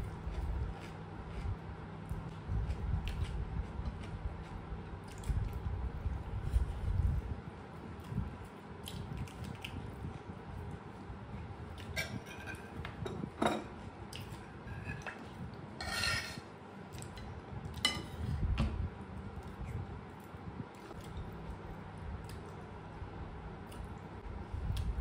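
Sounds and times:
metal spoon scraping a plate: 12.0 - 13.7, 14.6 - 15.2, 15.8 - 16.5.

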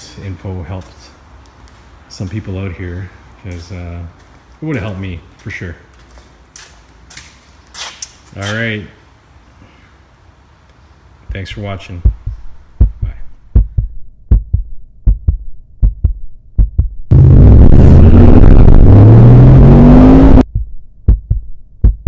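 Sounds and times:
rhythmic low thumps: 11.3 - 22.0
car engine accelerating: 17.1 - 20.4.

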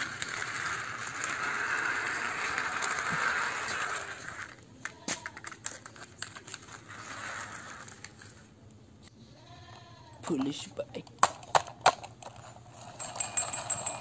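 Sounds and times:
toy wheels rolling on concrete: 0.0 - 8.7, 10.2 - 14.0.

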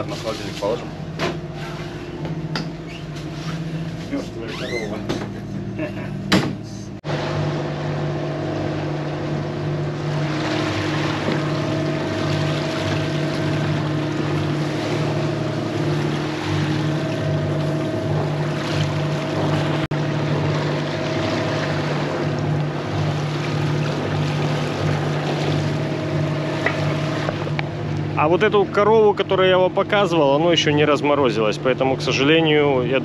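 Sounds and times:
boat diesel engine droning: 0.0 - 33.0
wind: 0.0 - 33.0
water rushing: 7.0 - 32.8.

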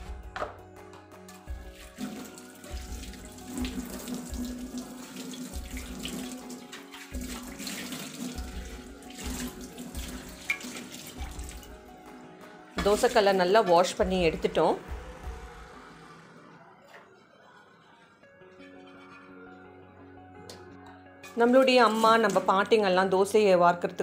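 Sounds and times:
tap water splashing on pan: 5.5 - 11.7.

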